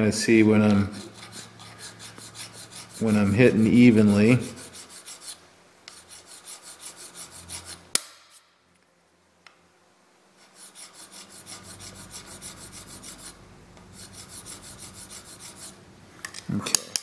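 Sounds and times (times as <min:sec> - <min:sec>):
file scraping metal: 0:00.6 - 0:08.0, 0:10.4 - 0:15.8.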